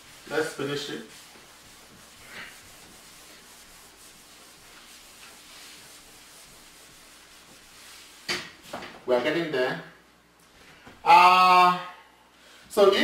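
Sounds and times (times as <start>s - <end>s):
eraser rubbing on chalkboard: 0.0s - 8.4s.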